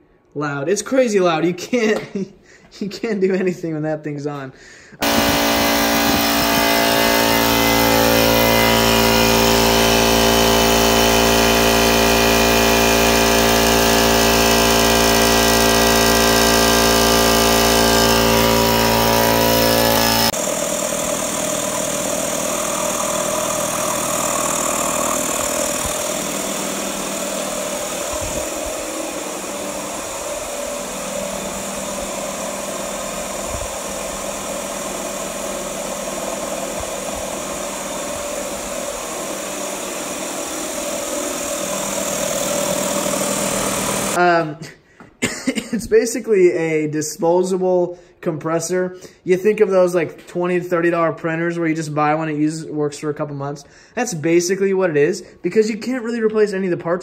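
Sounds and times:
air compressor running: 0:05.0 - 0:44.2
quieter air compressor running: 0:05.0 - 0:44.3.

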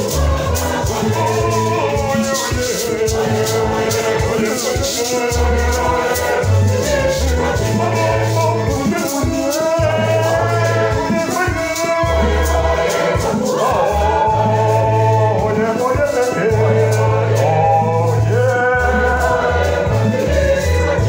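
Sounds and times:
choir singing a hymn: 0:00.0 - 0:21.0
lead voice on a microphone: 0:00.0 - 0:21.0
shaker rhythm: 0:00.0 - 0:21.0
electronic organ bass notes: 0:05.2 - 0:08.9, 0:09.8 - 0:11.2, 0:12.0 - 0:15.7, 0:16.4 - 0:21.0.

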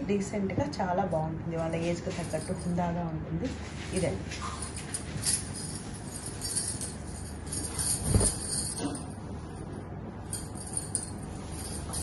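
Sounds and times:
light jingling: 0:02.0 - 0:03.0, 0:04.0 - 0:09.3, 0:10.2 - 0:12.0
fabric rustling: 0:03.4 - 0:08.8, 0:10.4 - 0:12.0.

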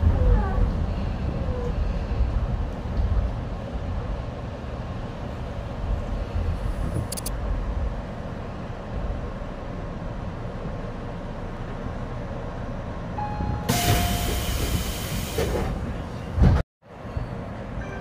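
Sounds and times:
train running rumble: 0:00.0 - 0:18.0
air brake hiss: 0:13.7 - 0:15.7.

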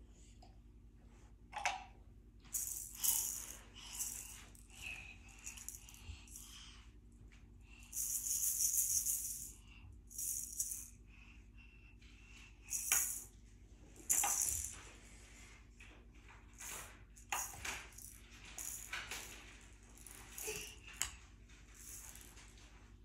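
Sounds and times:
toy rattle shaken: 0:02.5 - 0:06.6, 0:07.8 - 0:11.0, 0:12.6 - 0:13.3, 0:14.0 - 0:14.8, 0:16.6 - 0:22.7.

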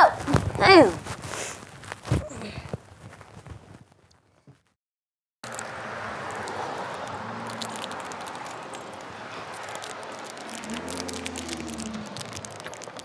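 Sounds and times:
passing road traffic: 0:05.4 - 0:13.0
deep car engine hum: 0:05.5 - 0:13.0.

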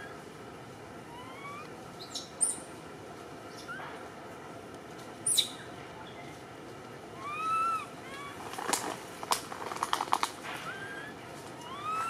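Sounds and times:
baby monkey whimpering: 0:01.1 - 0:01.7, 0:07.2 - 0:08.4, 0:10.6 - 0:12.0
baby monkey squeaking: 0:01.1 - 0:02.6, 0:07.2 - 0:08.4, 0:10.6 - 0:12.0.

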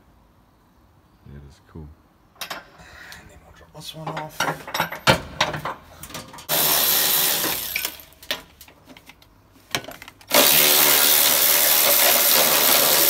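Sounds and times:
power tool spinning socket: 0:06.5 - 0:08.2, 0:10.2 - 0:13.0.

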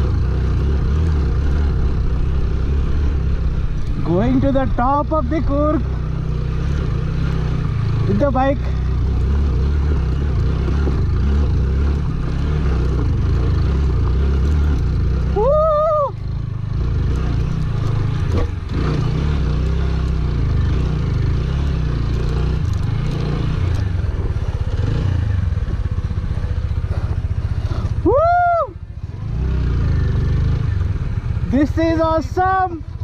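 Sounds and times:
motorcycle engine under load: 0:00.0 - 0:33.0
rider shouting woo: 0:15.3 - 0:16.2, 0:28.0 - 0:28.9.

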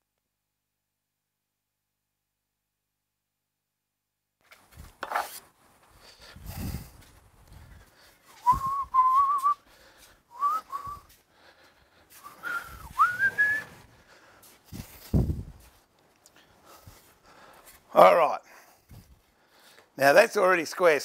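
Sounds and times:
handling knocks and shuffles: 0:04.4 - 0:11.3, 0:12.0 - 0:17.9
man whistling: 0:08.3 - 0:09.6, 0:10.3 - 0:11.1, 0:12.2 - 0:13.8.

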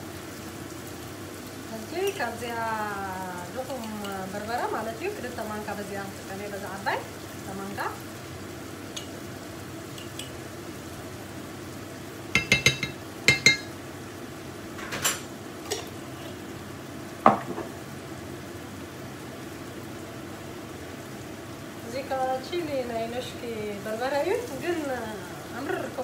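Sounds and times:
food sizzling in a pot: 0:00.0 - 0:26.0
spoon clinking against dishes: 0:12.4 - 0:13.7.

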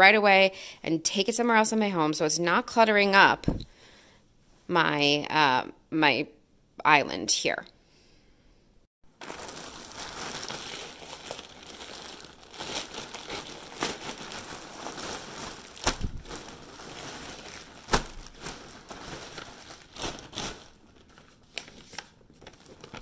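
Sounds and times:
plastic bag crinkling: 0:09.1 - 0:23.0.

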